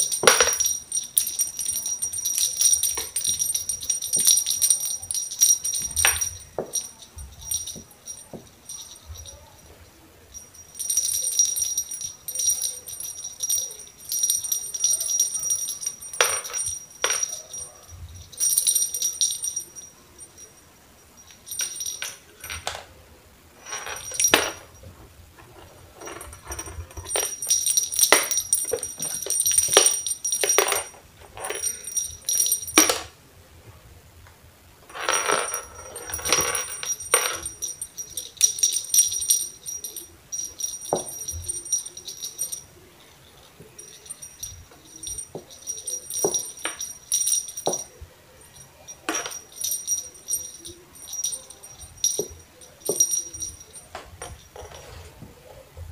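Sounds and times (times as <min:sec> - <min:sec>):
jingle bell tinkling: 0:00.0 - 0:22.9, 0:23.6 - 0:33.1, 0:34.9 - 0:55.6.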